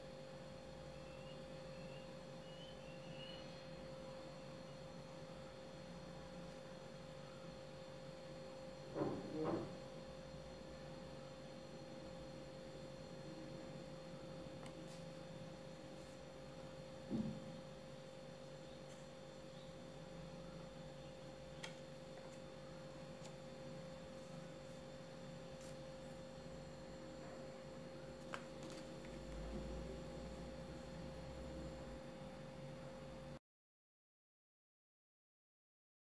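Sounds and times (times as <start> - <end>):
steady high-pitched hum: 0.0 - 33.4.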